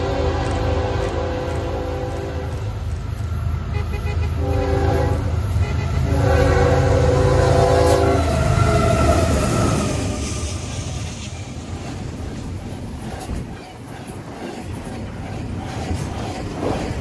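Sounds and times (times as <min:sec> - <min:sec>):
locomotive air horn: 0:00.0 - 0:02.8, 0:03.7 - 0:09.0
passing train rumble: 0:00.0 - 0:17.0.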